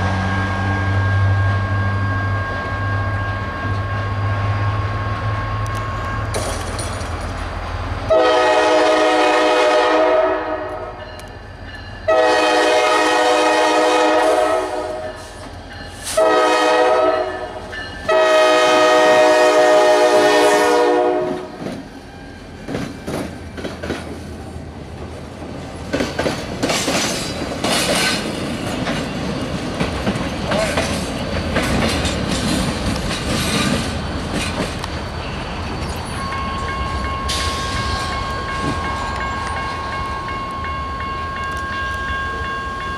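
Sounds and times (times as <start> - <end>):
train wheels clicking over rail joints: 5.6 - 7.6, 21.3 - 24.4, 25.0 - 40.1
locomotive air horn: 8.1 - 11.0, 12.1 - 15.2, 16.0 - 21.6.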